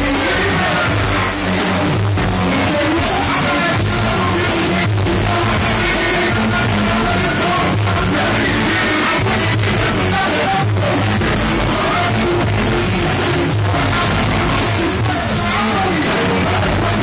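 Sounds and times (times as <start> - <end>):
live band with drums and vocals: 0.0 - 17.0.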